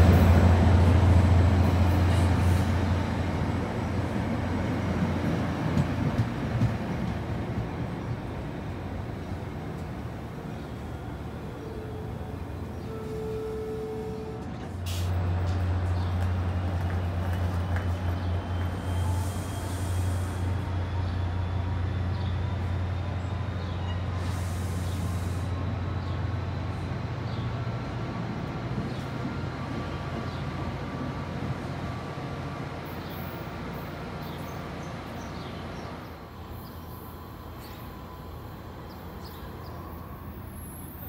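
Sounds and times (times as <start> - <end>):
diesel locomotive droning: 0.0 - 41.0
train brakes air hiss: 14.8 - 15.2, 18.7 - 20.8, 24.0 - 25.7.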